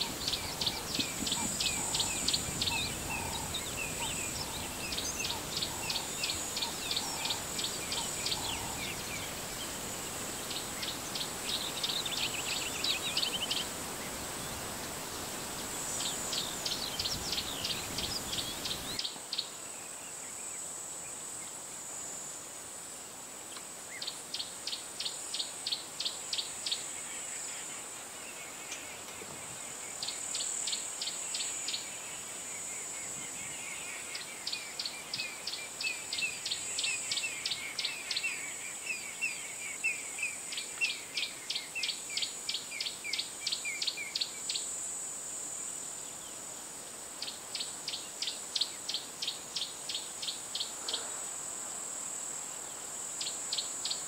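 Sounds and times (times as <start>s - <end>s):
bird twittering: 0.0s - 9.2s.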